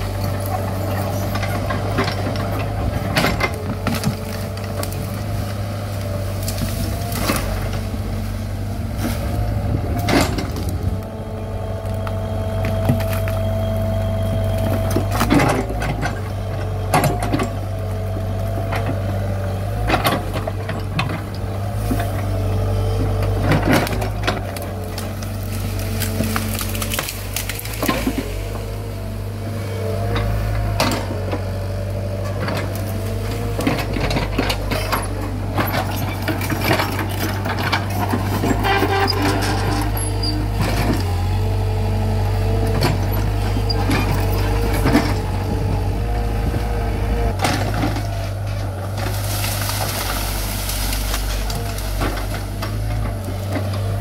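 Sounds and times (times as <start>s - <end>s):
branches cracking and snapping: 0.0s - 54.0s
excavator diesel engine running: 0.0s - 54.0s
hydraulic whine: 0.0s - 54.0s.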